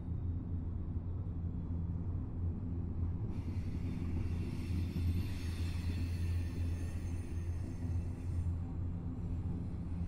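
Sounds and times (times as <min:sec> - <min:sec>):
steel wheels hissing on rail: 0:03.3 - 0:08.6.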